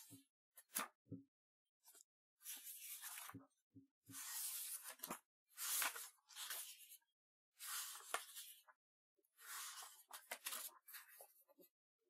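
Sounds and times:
book pages turning: 1.9 - 3.4, 4.2 - 6.9, 7.6 - 8.6, 9.4 - 11.4.

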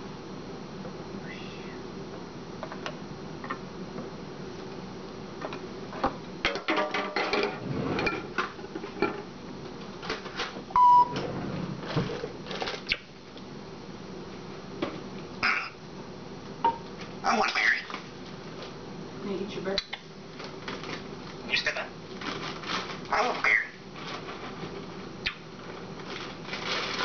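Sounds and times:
room hum: 0.0 - 27.0
dishes and utensils clattering: 6.5 - 9.2
short high beep: 10.8 - 11.1.

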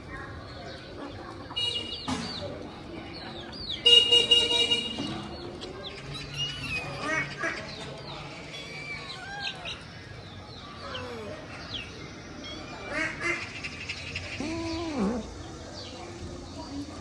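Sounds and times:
cats meowing: 8.5 - 9.9, 14.4 - 15.4.

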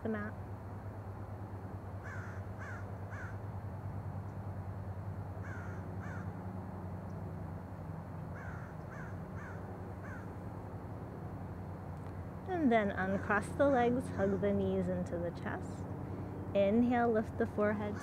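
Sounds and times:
crow cawing: 2.0 - 3.4, 5.4 - 6.3, 8.3 - 10.3.

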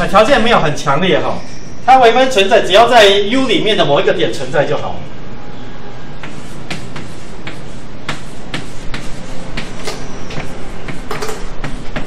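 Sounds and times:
chalk tapping and scratching: 6.2 - 12.0.

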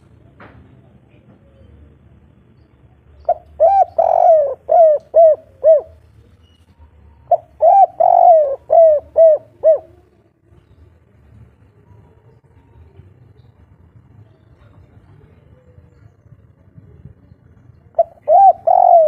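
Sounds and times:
dove cooing: 3.2 - 6.2, 7.2 - 10.3, 17.9 - 19.0.

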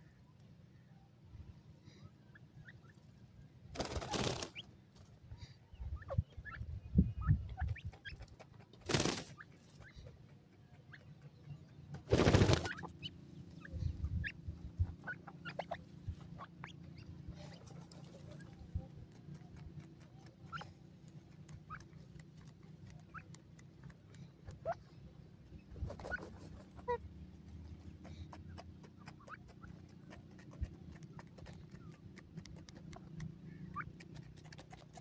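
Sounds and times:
bird clucking calls: 3.8 - 35.0
small ticks: 17.8 - 24.8, 28.0 - 35.0.

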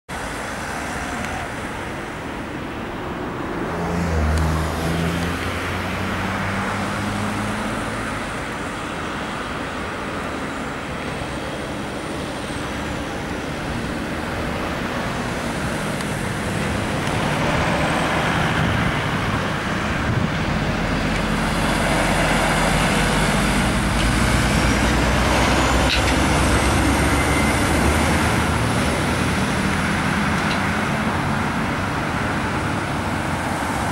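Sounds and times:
cars driving past: 0.1 - 33.9
diesel trucks driving past: 0.1 - 33.9.

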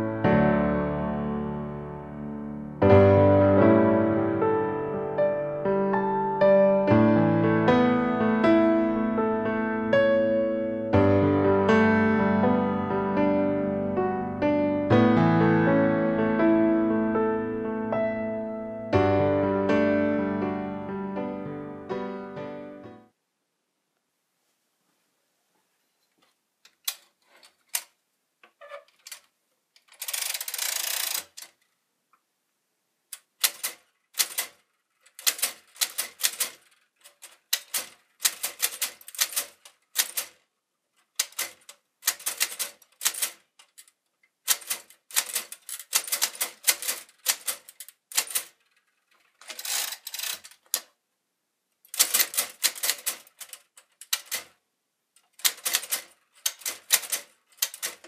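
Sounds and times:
toy typewriter keystrokes: 26.8 - 27.1, 29.8 - 31.6, 33.2 - 40.4, 41.0 - 50.9, 51.9 - 54.6, 55.2 - 58.0
typewriter rasp: 29.9 - 31.5, 33.2 - 40.4, 41.1 - 43.9, 44.5 - 48.7, 49.4 - 50.9, 51.9 - 54.5, 55.3 - 58.0.

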